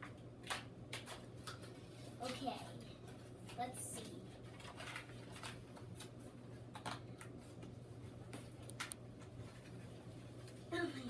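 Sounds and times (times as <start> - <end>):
packaging rustling and crinkling: 4.0 - 7.7.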